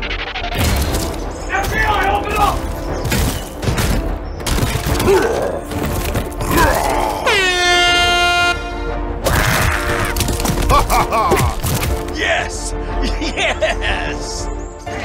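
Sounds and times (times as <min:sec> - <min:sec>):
background music: 0:00.0 - 0:15.0
truck air horn blast: 0:07.5 - 0:09.0.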